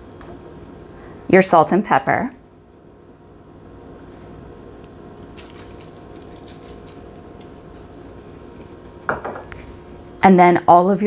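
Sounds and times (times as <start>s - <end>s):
low room hum: 0.0s - 11.0s
grains pattering into bowl: 5.2s - 8.0s.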